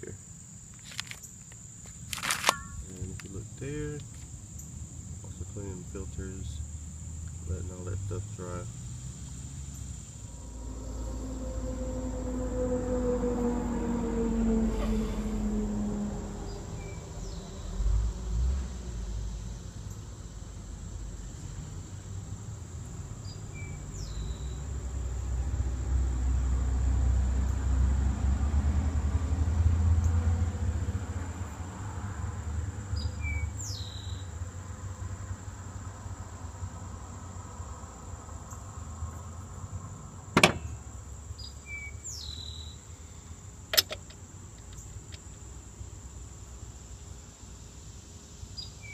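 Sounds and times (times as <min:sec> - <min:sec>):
sharp click: 0:02.1 - 0:03.3, 0:43.7 - 0:45.2
high-pitched insect drone: 0:02.5 - 0:24.7
low rumble: 0:10.1 - 0:18.2.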